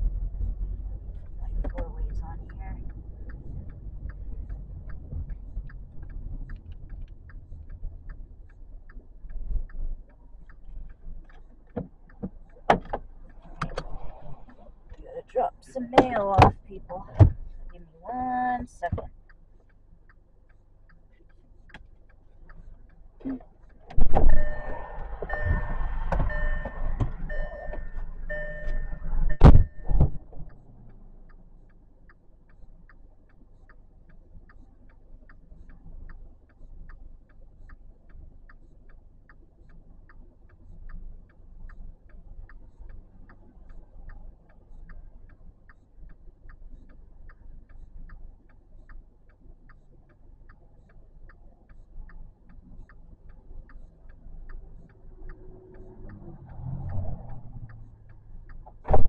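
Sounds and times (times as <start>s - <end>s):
low rumble: 0.0s - 59.0s
car indicator ticking: 1.2s - 13.9s, 14.8s - 59.0s.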